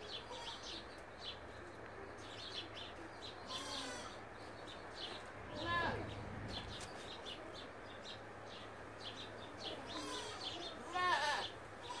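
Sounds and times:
small birds chirping: 0.0s - 12.0s
goat bleating: 3.5s - 4.2s, 9.8s - 12.0s.

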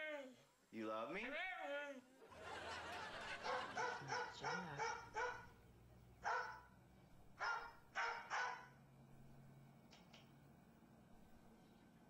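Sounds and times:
dog barking: 3.4s - 5.6s, 6.2s - 6.7s, 7.4s - 8.8s.

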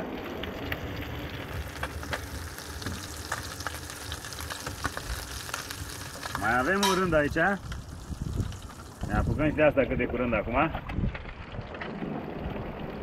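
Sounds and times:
fish frying in a pan: 0.0s - 9.8s
hot oil crackling and popping: 0.0s - 13.0s.

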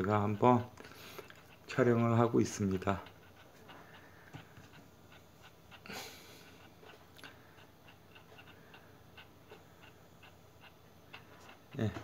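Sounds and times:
soft breath: 0.8s - 1.6s, 3.6s - 4.8s.

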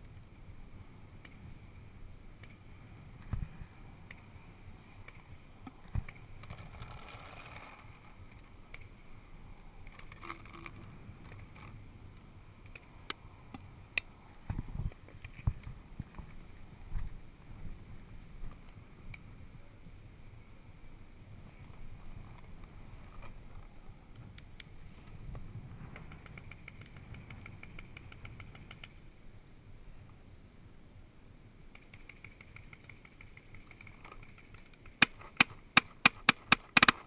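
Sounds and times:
paintball markers popping: 31.8s - 37.0s.

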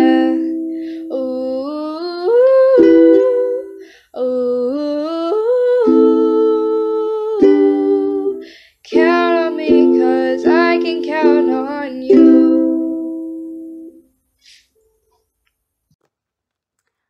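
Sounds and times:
ukulele strumming chords: 0.0s - 3.9s, 5.3s - 14.0s
girl singing: 0.0s - 14.0s.

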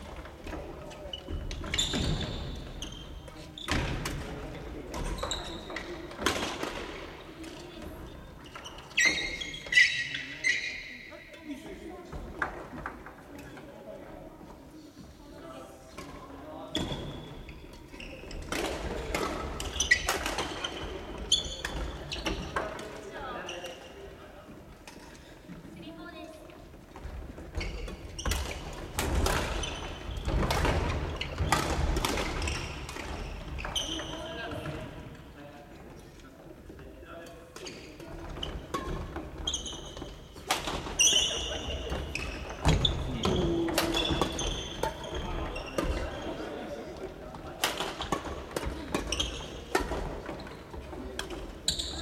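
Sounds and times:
shoes squeaking on wooden floor: 0.0s - 3.9s, 5.0s - 6.1s, 8.4s - 11.1s, 26.9s - 34.8s, 37.6s - 46.6s, 48.0s - 52.0s.

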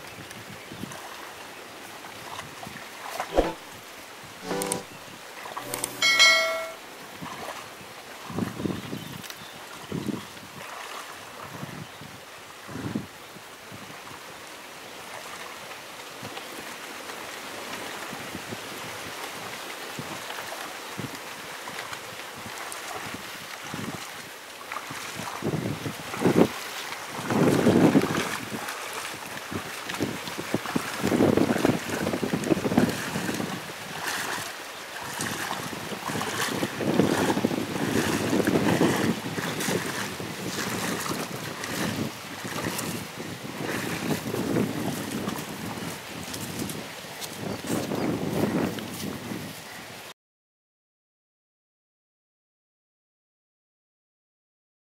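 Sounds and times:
wind noise on microphone: 0.0s - 1.0s, 6.0s - 14.2s, 18.0s - 20.3s, 20.9s - 24.2s, 24.9s - 34.5s, 35.1s - 50.1s
water sloshing around wading legs: 0.9s - 3.8s, 4.4s - 8.3s, 9.3s - 11.6s, 15.0s - 15.7s, 20.2s - 47.4s.

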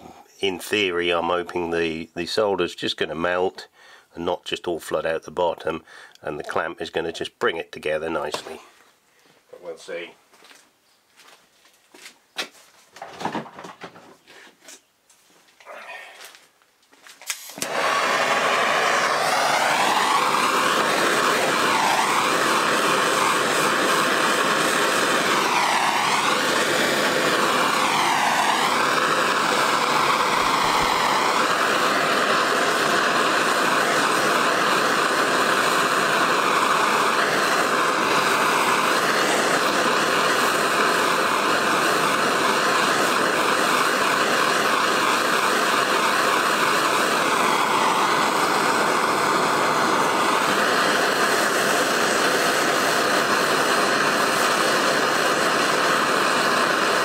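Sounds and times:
blowtorch flame roaring hiss: 8.1s - 8.6s, 17.3s - 57.0s.

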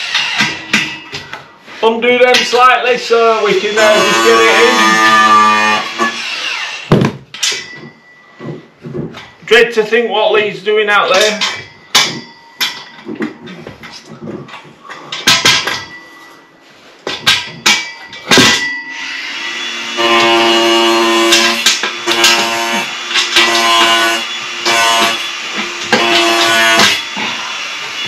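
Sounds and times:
metal knocks and clunks: 6.9s - 9.5s, 11.1s - 16.0s, 17.0s - 18.8s.

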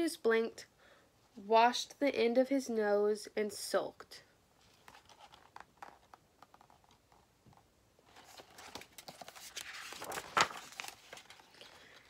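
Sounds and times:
paper rustling: 4.6s - 12.0s
page flapping: 4.7s - 12.0s.

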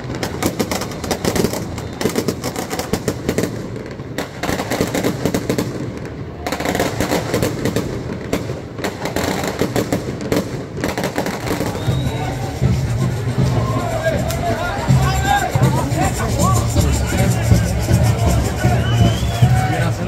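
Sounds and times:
firecrackers popping rapidly: 0.0s - 20.0s.

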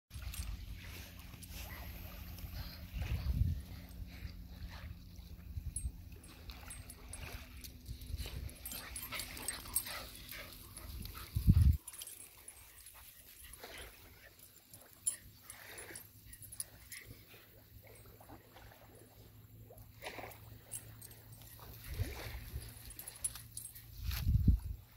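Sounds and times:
wind rumbling on microphone: 2.3s - 9.4s, 10.8s - 11.8s, 23.9s - 24.9s.

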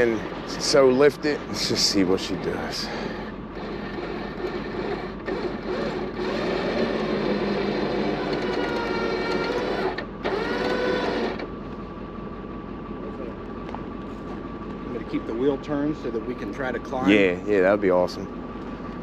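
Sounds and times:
winch whining under load: 0.0s - 13.5s.

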